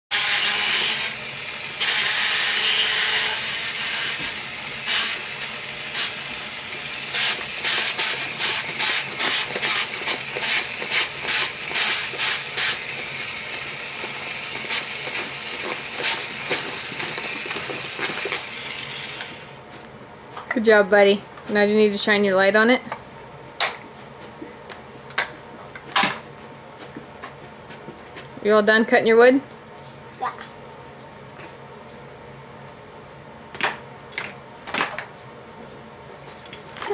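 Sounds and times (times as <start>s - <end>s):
loud steady buzz: 0.1s - 19.7s
toy jigsaw clattering: 7.1s - 19.4s.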